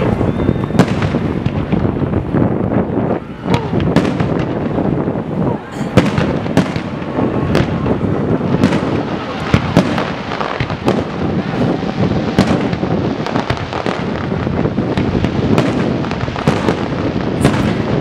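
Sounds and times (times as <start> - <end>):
fireworks bangs and crackles: 0.0 - 18.0.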